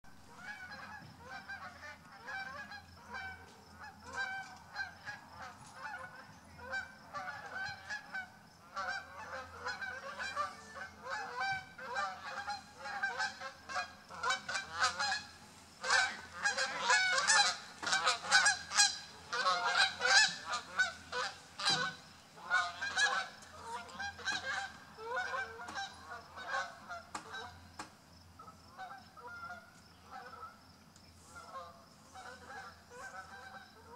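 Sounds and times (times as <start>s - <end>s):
geese honking: 0.2s - 30.6s, 31.2s - 33.9s.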